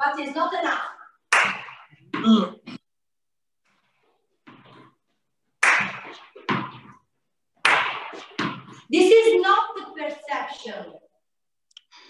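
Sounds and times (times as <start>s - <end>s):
sharp smacks: 1.3s - 2.0s, 5.6s - 6.8s, 7.6s - 8.7s.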